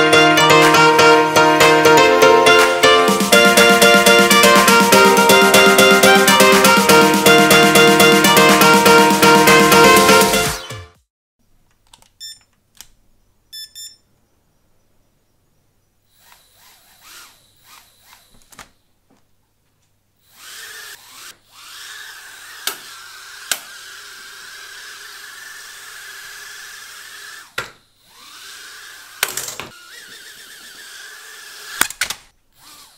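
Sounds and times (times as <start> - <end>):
quadcopter motors whining: 16.1 - 18.8, 20.2 - 32.9.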